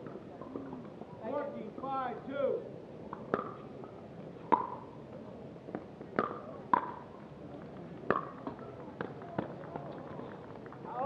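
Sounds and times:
faint ball taps: 3.1 - 3.6, 5.7 - 7.0, 8.1 - 9.8.

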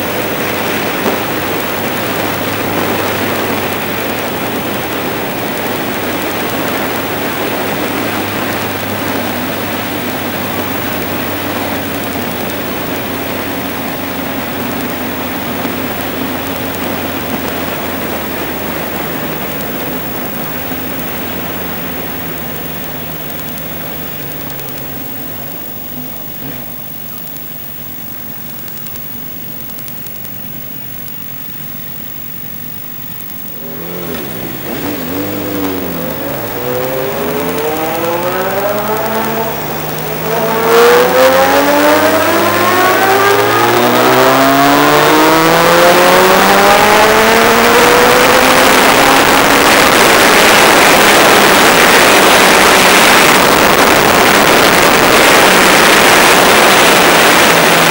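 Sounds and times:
engine revving up: 0.0 - 27.2, 33.5 - 57.9
motorcycle engine cruising: 0.0 - 57.9
wind noise: 33.6 - 57.9.

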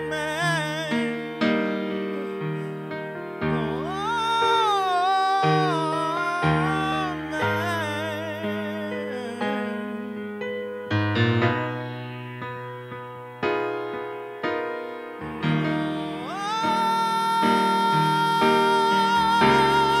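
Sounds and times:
man singing high note: 0.0 - 10.5, 15.5 - 20.0
piano playing slow chords: 0.0 - 20.0.

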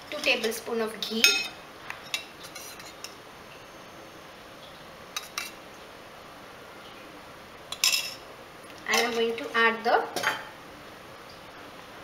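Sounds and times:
metal utensils clinking: 7.7 - 8.2, 8.9 - 9.4.

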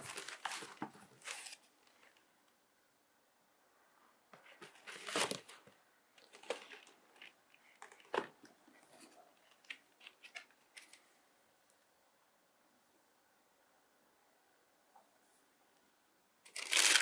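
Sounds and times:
tissue paper crinkling: 16.5 - 17.0.

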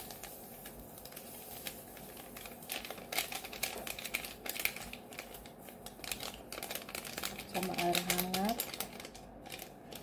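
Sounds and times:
paper sachet tapped and shaken: 0.0 - 10.0
yeast granules ticking into bowl: 2.5 - 10.0.

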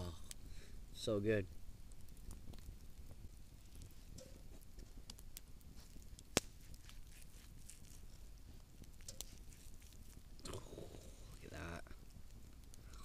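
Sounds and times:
faint crackles: 0.0 - 13.0
sharp snap: 6.3 - 6.6.

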